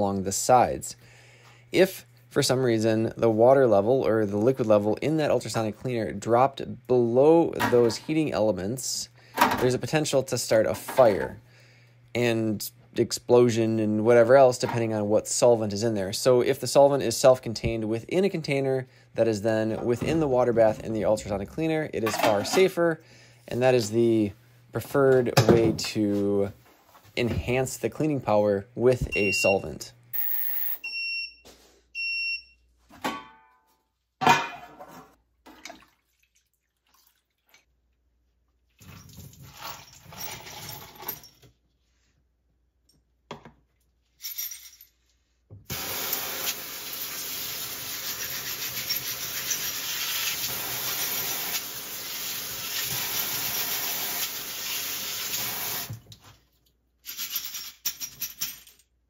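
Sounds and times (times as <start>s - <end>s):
ultrasonic cleaner hissing: 45.7s - 55.9s
small parts clattering: 57.0s - 59.0s.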